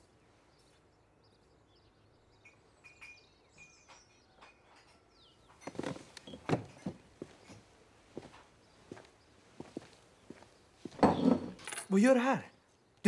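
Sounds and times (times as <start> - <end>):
footsteps and knocks: 5.5 - 11.8.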